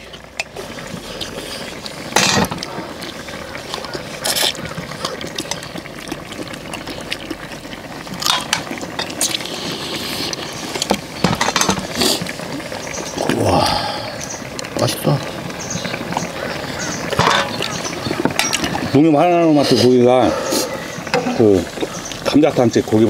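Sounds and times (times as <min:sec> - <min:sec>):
people chewing and sucking: 0:00.0 - 0:14.9, 0:19.6 - 0:22.4.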